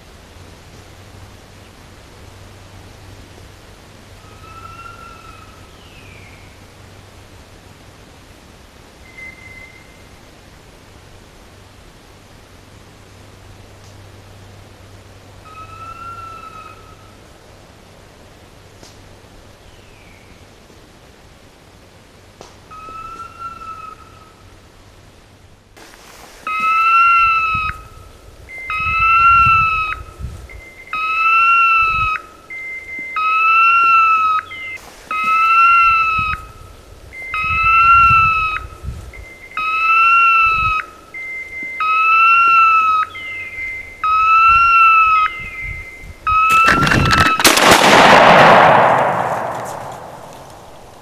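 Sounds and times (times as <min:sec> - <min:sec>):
shotgun shot with echo: 0:46.5 - 0:51.0.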